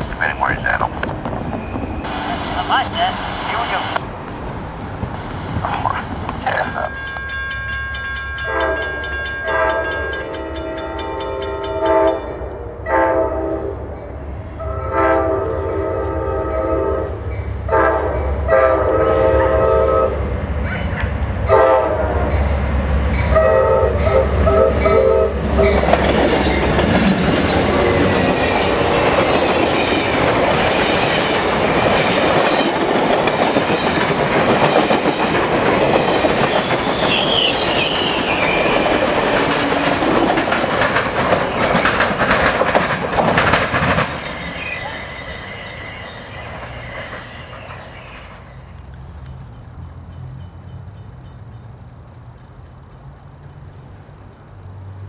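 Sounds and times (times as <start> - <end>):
train horn blasts: 8.4 - 14.0, 14.6 - 20.2, 21.5 - 22.4, 23.3 - 25.8
wheels clacking over rail joints: 24.0 - 54.4
high wheel squeal: 36.3 - 39.1, 44.1 - 48.7.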